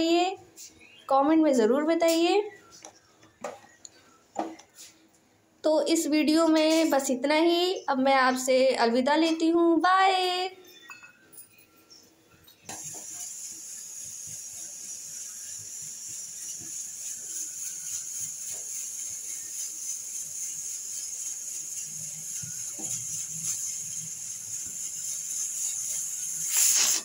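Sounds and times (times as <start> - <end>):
pressure cooker steam hissing: 12.7 - 27.0.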